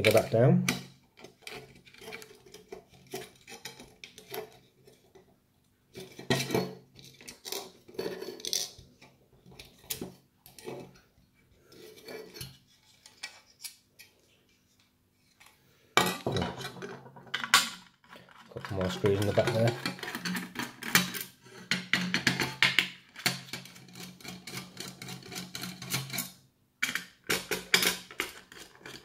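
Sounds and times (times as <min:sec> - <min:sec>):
screwdriver clicking and scraping metal: 0:00.0 - 0:05.1, 0:18.1 - 0:21.3, 0:23.2 - 0:29.0.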